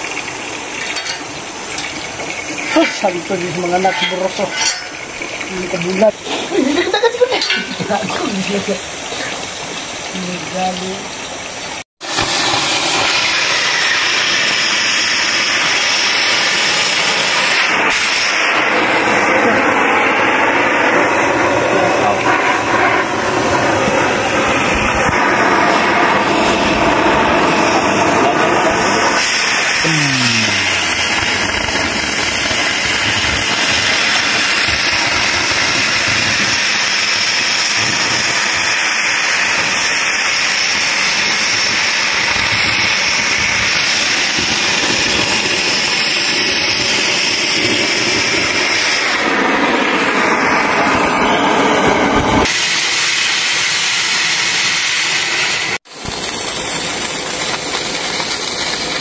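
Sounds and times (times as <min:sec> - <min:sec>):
arc welding crackling: 0:00.0 - 0:11.0, 0:12.0 - 0:59.0
cutting torch hissing: 0:00.0 - 0:59.0.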